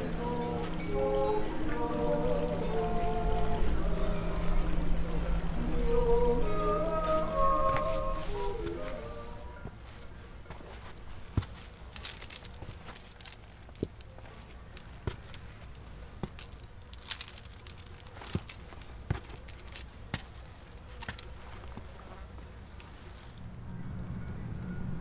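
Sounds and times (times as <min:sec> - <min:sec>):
metallic clinking and jingling: 0:11.6 - 0:21.3, 0:23.0 - 0:23.9.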